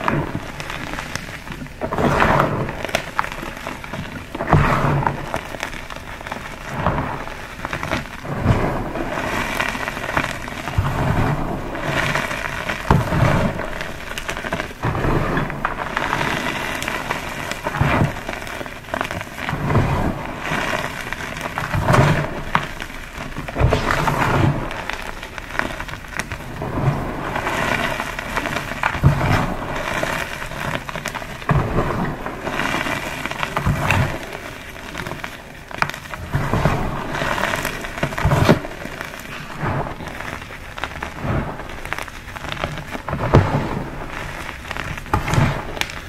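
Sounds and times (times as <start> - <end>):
chalk blocks crunching: 37.2 - 41.0.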